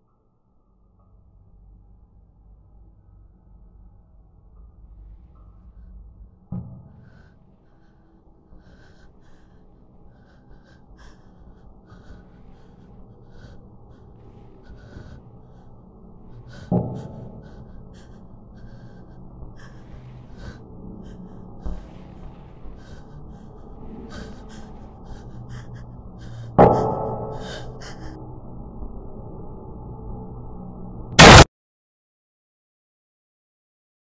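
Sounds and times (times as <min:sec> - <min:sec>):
person breathing heavily: 0:05.0 - 0:28.8.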